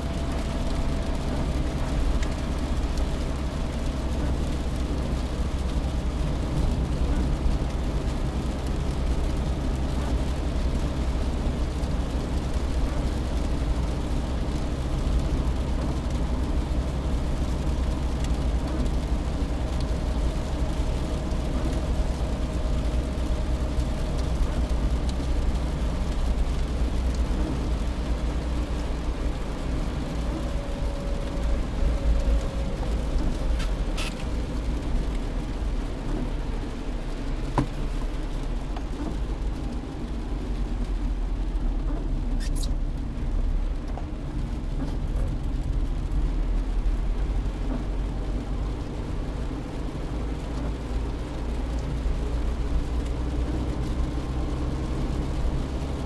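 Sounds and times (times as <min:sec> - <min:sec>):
rain hissing on wet road: 0:00.0 - 0:56.0
road and engine rumble: 0:00.0 - 0:56.0.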